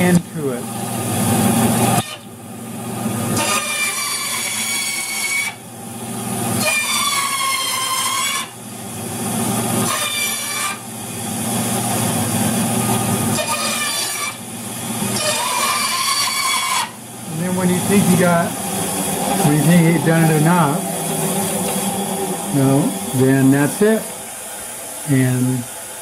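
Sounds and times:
bandsaw motor hum: 0.0s - 26.0s
board screaming against saw blade: 1.8s - 2.3s, 3.3s - 5.6s, 6.5s - 8.6s, 9.8s - 10.9s, 13.2s - 18.4s.

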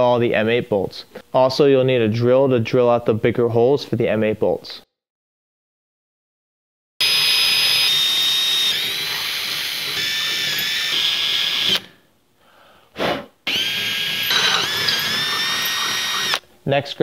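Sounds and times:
cordless drill boring steel: 7.0s - 12.0s, 13.5s - 16.4s.

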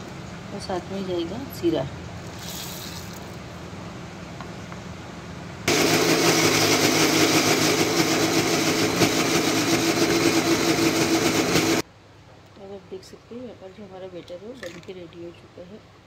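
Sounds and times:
mixer grinder running: 5.7s - 11.8s.

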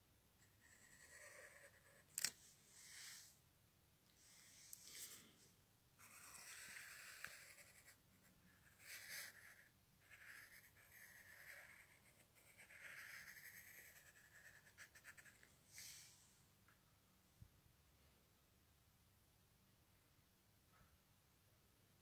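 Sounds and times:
pen scratching on paper: 0.5s - 2.1s, 6.0s - 15.5s.

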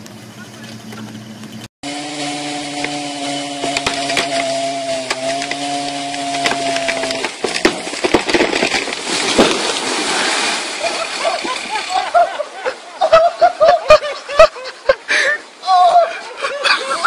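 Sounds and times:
chainsaw cutting wood: 1.8s - 10.7s
wood cracking and splintering: 2.7s - 12.1s.

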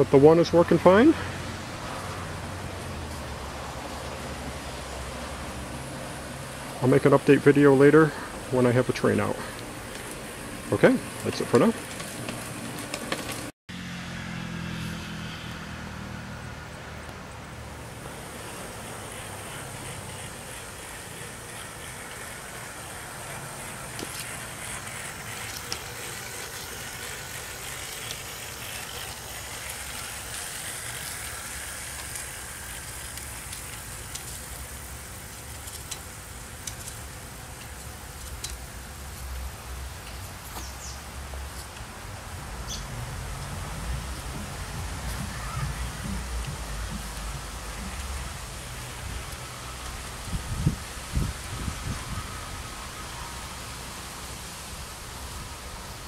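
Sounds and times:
model trains rolling on track: 1.8s - 13.5s, 17.8s - 40.6s, 43.2s - 51.9s.

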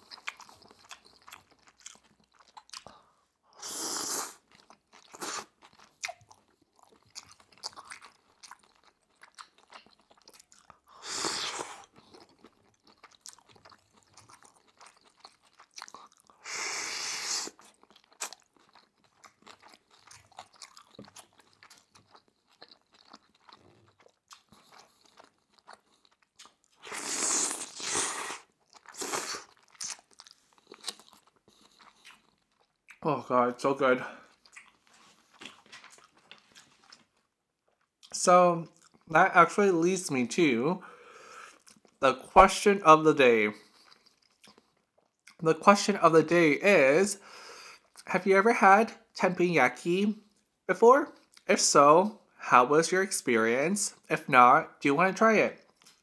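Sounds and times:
wet chewing: 0.0s - 3.1s, 4.2s - 33.1s, 34.2s - 39.1s, 43.6s - 45.4s
slurping noodles: 3.6s - 4.5s, 16.4s - 17.7s, 26.8s - 29.8s
lip smacks: 34.4s - 37.1s.

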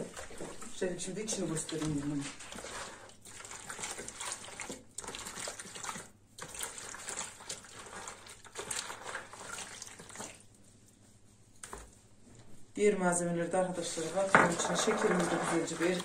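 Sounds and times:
hand sloshing in milk: 0.0s - 12.0s.

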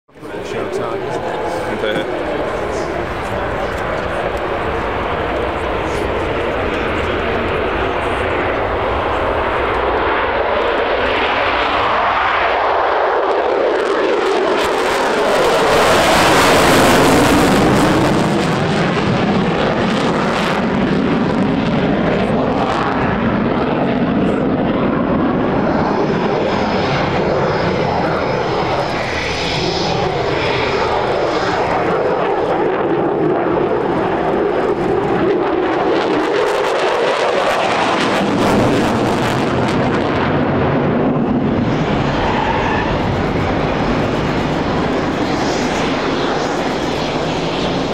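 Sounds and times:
jet engines roaring: 0.1s - 47.9s.

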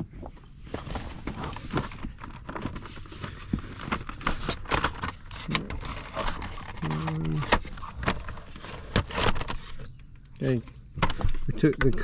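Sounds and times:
plastic housing clicking and rustling: 3.4s - 12.0s.

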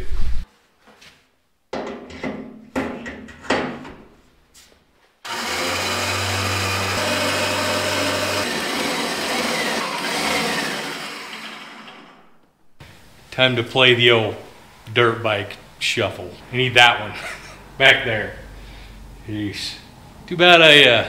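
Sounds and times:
lift table machine hum: 5.3s - 12.4s.

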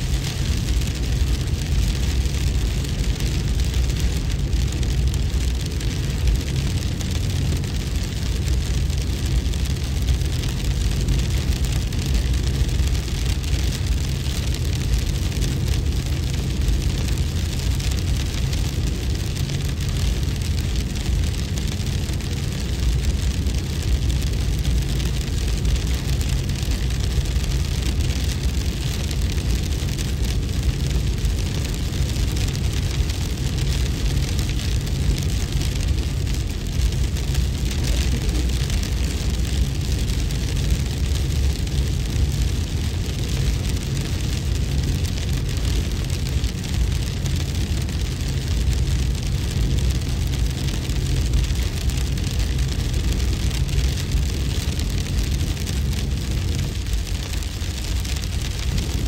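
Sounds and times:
steady noise with deep bass: 0.0s - 59.0s.

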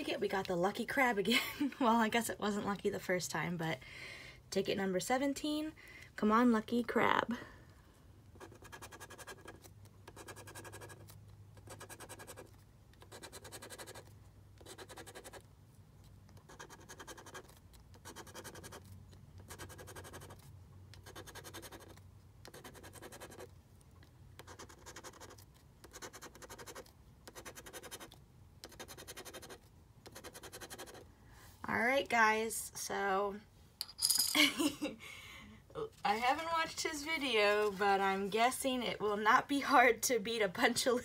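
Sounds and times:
coin scratching lottery ticket: 8.4s - 15.4s, 16.4s - 20.4s, 21.0s - 23.5s, 24.4s - 31.0s.

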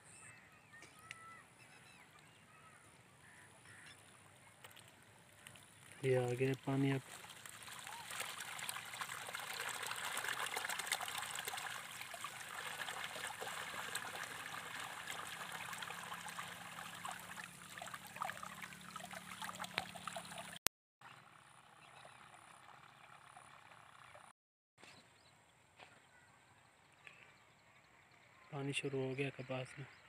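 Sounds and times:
water trickling along channel: 3.7s - 20.6s, 21.7s - 24.3s.

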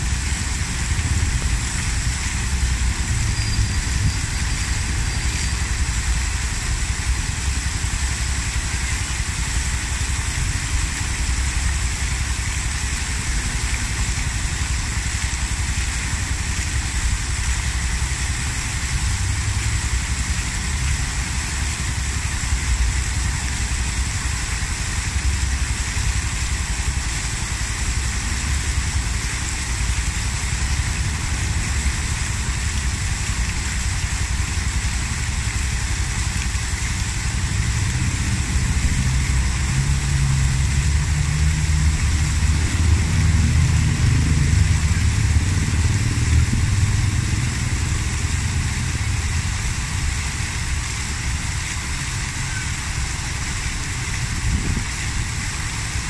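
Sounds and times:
deep water rumble: 0.0s - 56.0s
water cascading and splashing: 0.0s - 56.0s.

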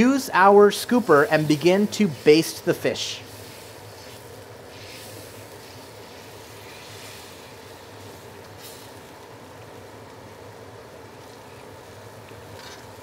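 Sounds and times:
gas stove burner roaring: 0.0s - 13.0s
splashy hisses of ladled liquid: 3.1s - 9.0s.

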